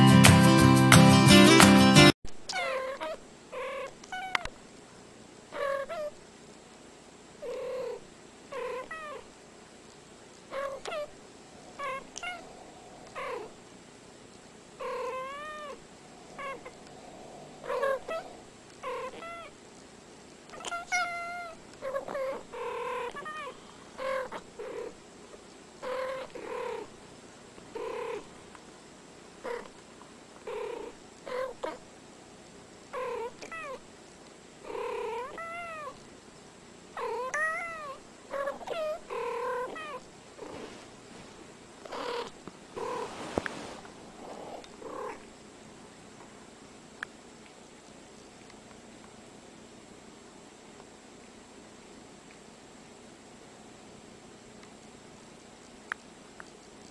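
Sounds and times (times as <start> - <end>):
cats meowing: 2.5 - 4.5, 10.5 - 13.6, 14.8 - 19.5, 20.5 - 24.9, 33.0 - 33.8, 34.7 - 36.0, 37.0 - 40.1.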